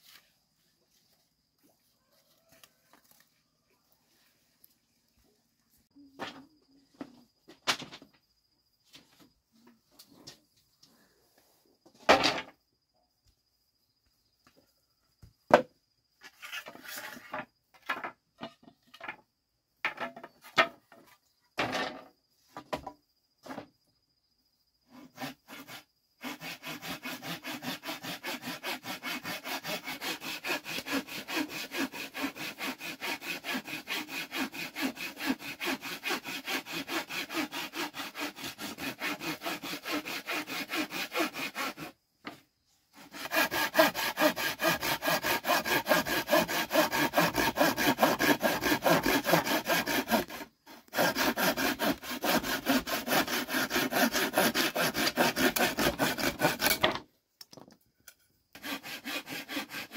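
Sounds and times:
handsaw cutting wooden board: 24.9s - 42.0s, 43.0s - 57.0s, 58.6s - 59.9s.

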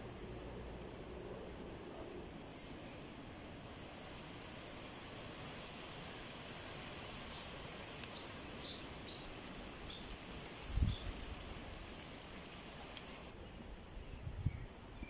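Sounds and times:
small birds chirping: 7.3s - 11.2s.

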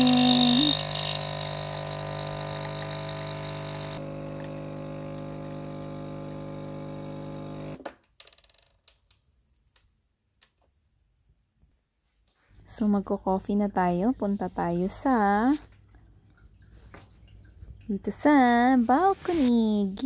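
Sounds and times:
coffee machine pump buzzing: 0.0s - 7.8s.

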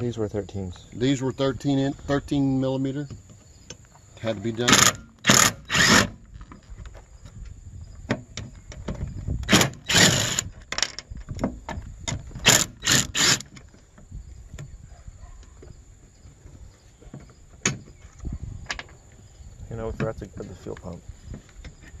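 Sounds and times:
cordless drill spinning out bolts: 4.7s - 6.3s, 9.4s - 10.6s, 12.3s - 13.6s.

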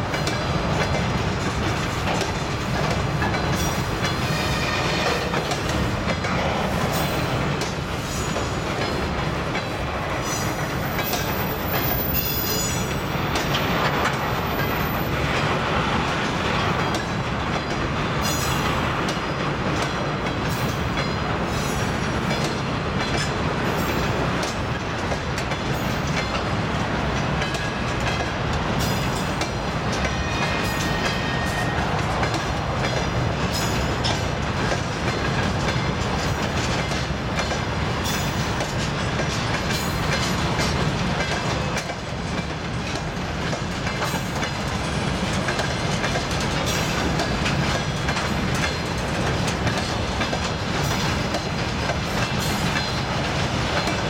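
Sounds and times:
train wagons rumbling: 0.0s - 54.0s
wheels clacking over rail joints: 0.0s - 54.0s.

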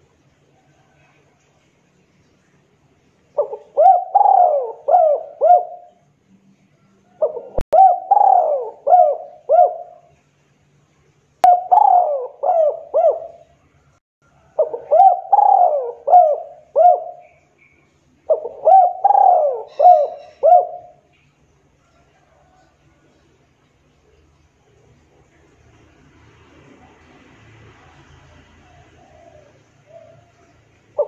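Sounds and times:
dove cooing: 3.3s - 6.0s, 7.2s - 10.1s, 11.4s - 13.5s, 14.4s - 17.4s, 18.3s - 21.1s, 28.6s - 31.0s.

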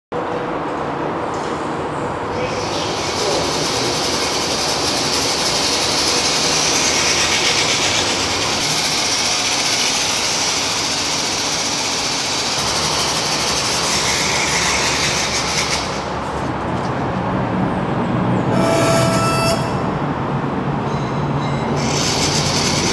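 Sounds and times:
toy car electric motor whir: 2.9s - 16.1s, 21.8s - 22.9s.

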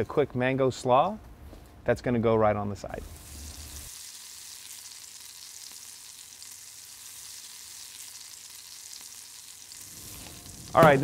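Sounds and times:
grill sizzling hiss: 2.6s - 11.0s
faint crackles: 2.9s - 11.0s.

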